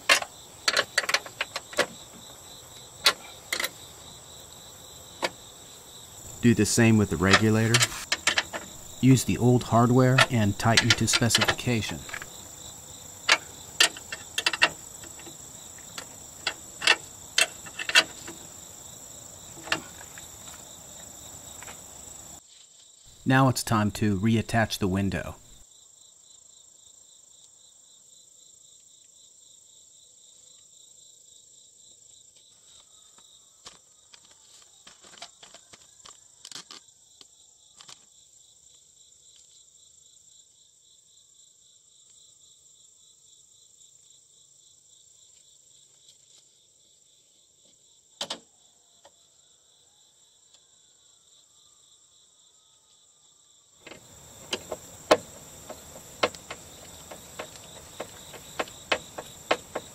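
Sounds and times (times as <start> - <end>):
clicks and knocks inside car door: 0.0 - 2.1, 13.2 - 18.4, 53.9 - 59.9
insect chirping: 0.0 - 59.9.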